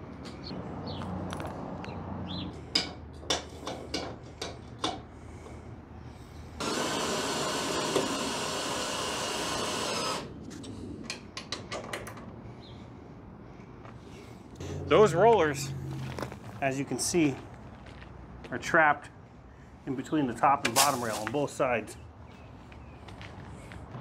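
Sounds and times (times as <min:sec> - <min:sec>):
sharp metal clicks and taps: 0:02.7 - 0:05.1, 0:11.0 - 0:12.3
cordless drill driving bolt: 0:06.6 - 0:10.3.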